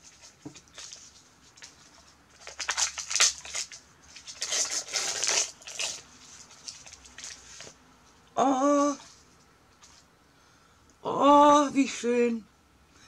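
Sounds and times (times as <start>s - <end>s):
wrapping paper rustling and tearing: 0.0s - 7.8s.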